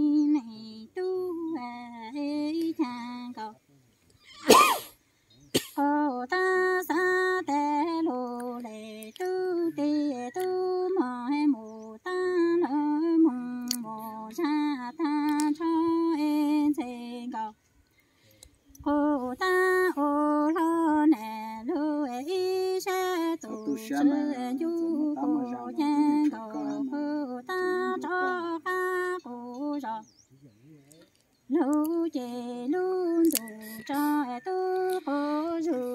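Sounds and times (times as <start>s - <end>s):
woman chanting unaccompanied: 18.8s - 30.1s, 31.5s - 35.9s.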